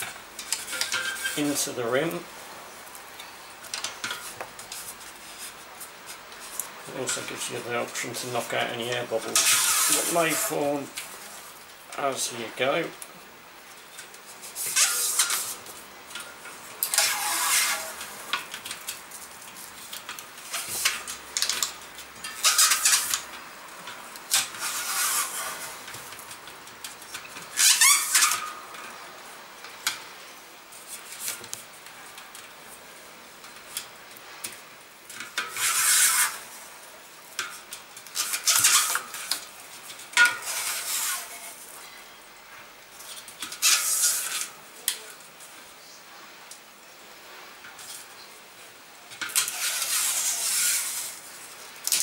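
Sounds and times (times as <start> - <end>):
adhesive tape peeling off roll: 9.2 - 11.4, 14.1 - 16.2, 16.8 - 28.6, 35.1 - 36.7, 37.4 - 41.8, 49.2 - 52.0.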